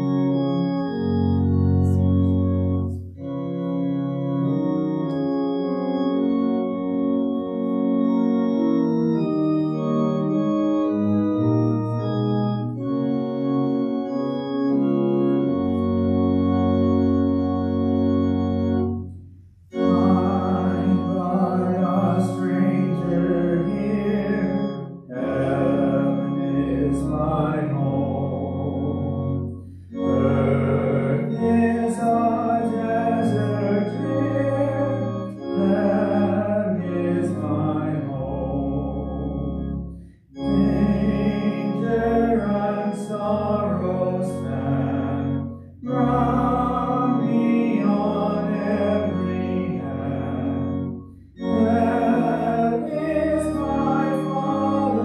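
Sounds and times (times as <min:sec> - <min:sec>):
church organ chords: 0:00.0 - 0:55.0
congregation singing a hymn: 0:19.7 - 0:55.0.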